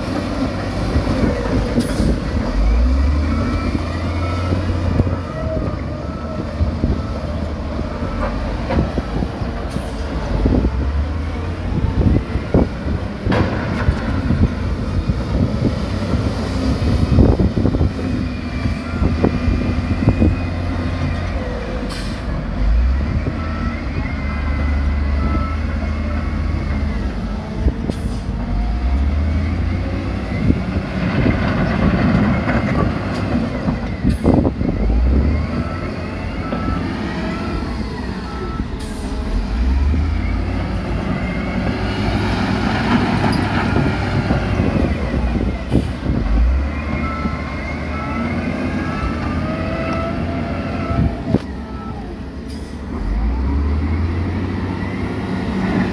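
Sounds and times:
heavy diesel machinery revving: 0.0 - 55.9.

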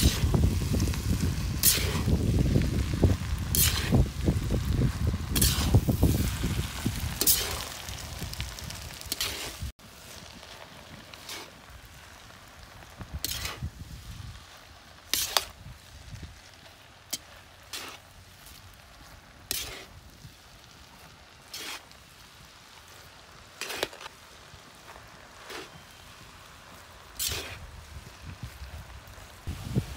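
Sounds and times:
utensil scraping iron wok: 1.6 - 2.1, 3.5 - 3.9, 5.4 - 5.9, 9.1 - 9.7, 11.1 - 11.6, 13.2 - 13.7, 21.5 - 21.9, 27.2 - 27.6.

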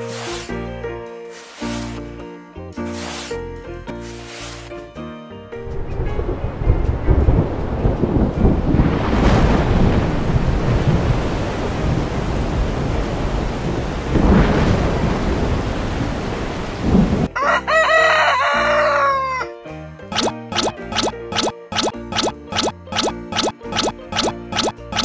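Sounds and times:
rain: 5.6 - 17.3
thunder rumbling and clapping: 5.7 - 17.3
rooster crowing: 17.3 - 19.5.

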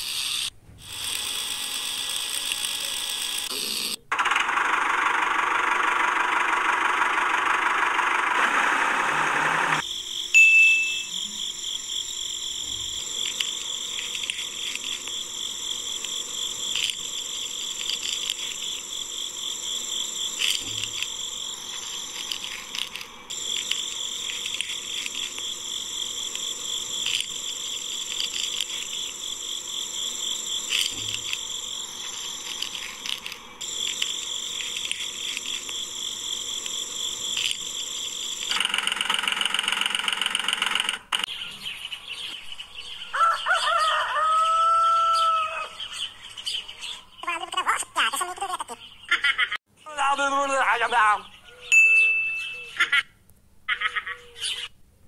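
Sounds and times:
high-pitched chirring: 5.3 - 41.3
rapid pulsing buzz: 11.3 - 41.3
rooster crowing: 43.0 - 45.9.

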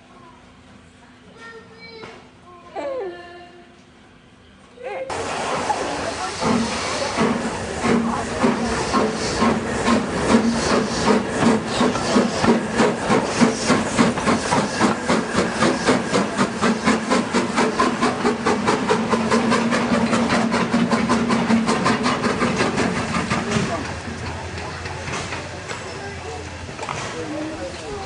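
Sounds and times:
steam locomotive chuffing: 5.1 - 28.0.

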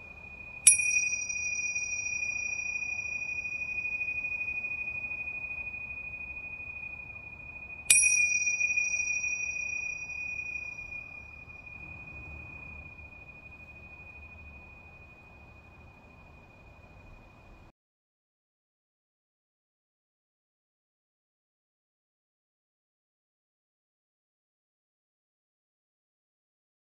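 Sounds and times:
small cymbals ringing: 0.0 - 17.7.

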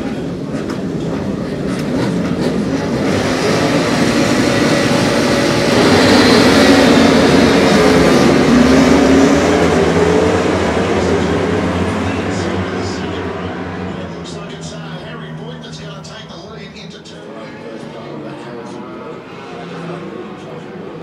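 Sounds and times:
motorbikes revving and accelerating: 0.1 - 16.2.

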